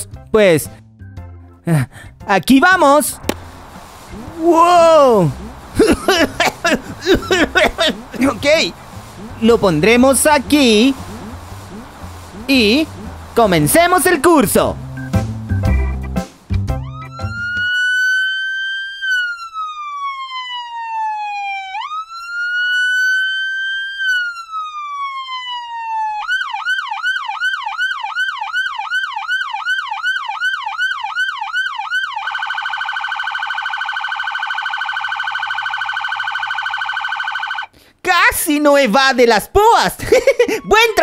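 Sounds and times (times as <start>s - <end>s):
electronic police siren: 9.2s - 13.1s, 16.8s - 37.7s, 40.6s - 41.0s.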